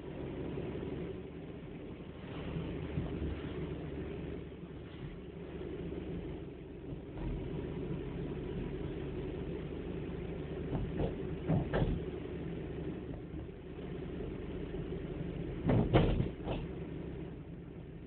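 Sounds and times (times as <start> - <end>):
car engine and tyre rumble: 0.0 - 18.0
short knocks: 10.7 - 12.0, 15.6 - 16.7.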